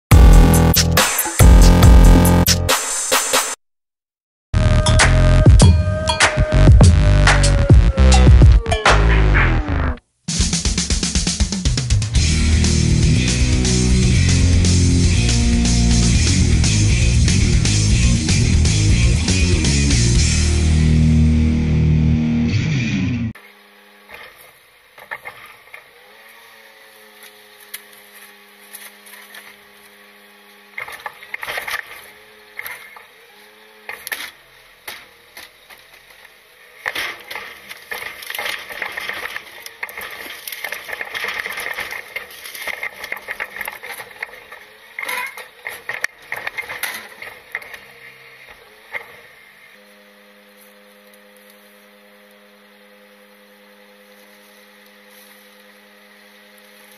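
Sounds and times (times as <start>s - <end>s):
garbage truck engine hum: 0.1s - 2.7s, 11.2s - 56.9s
rock music: 0.1s - 3.6s, 4.6s - 23.4s
hydraulic grabber arm clanking: 33.8s - 49.8s.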